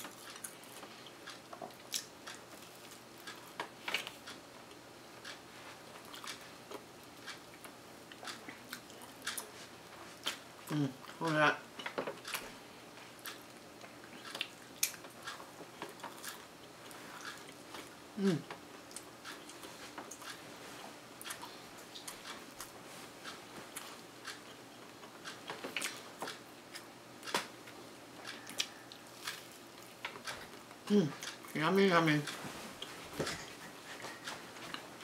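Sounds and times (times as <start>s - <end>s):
chewing crunchy waffle: 0.0s - 4.4s, 6.0s - 11.2s, 11.8s - 20.4s, 28.2s - 31.6s.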